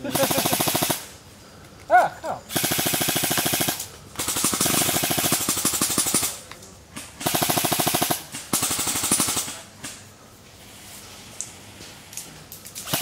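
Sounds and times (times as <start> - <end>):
airsoft rifles firing bursts: 0.0 - 1.1, 2.5 - 6.4, 7.0 - 10.0.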